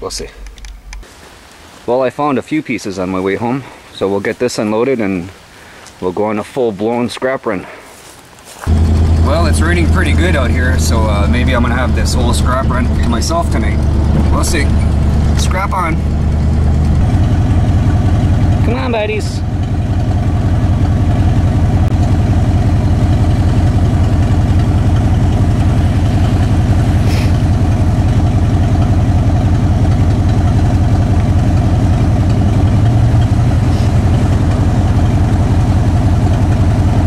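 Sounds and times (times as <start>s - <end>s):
pickup truck engine idling: 8.7s - 37.0s.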